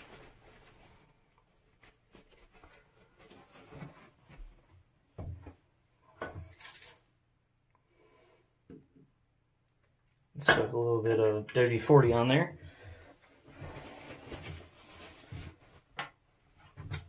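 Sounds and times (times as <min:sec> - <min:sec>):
paper towel rustling: 0:00.0 - 0:04.9, 0:12.7 - 0:16.3.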